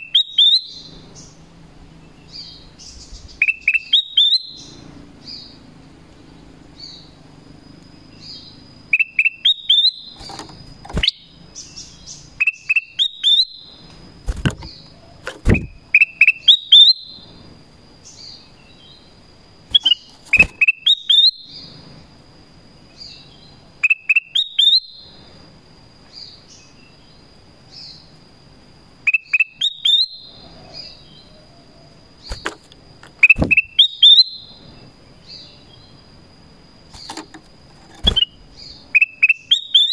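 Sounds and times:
bird singing whistled notes: 0.0s - 5.6s, 6.2s - 7.2s, 8.1s - 10.3s, 10.9s - 13.9s, 14.6s - 17.4s, 19.7s - 21.8s, 22.9s - 25.2s, 29.0s - 32.5s, 33.2s - 36.1s, 38.0s - 39.9s
sharp knocks: 14.3s - 15.8s, 33.4s - 33.7s.

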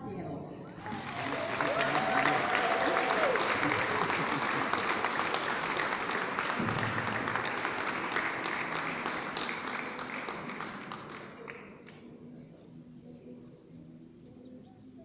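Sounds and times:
audience applauding: 0.7s - 12.1s.

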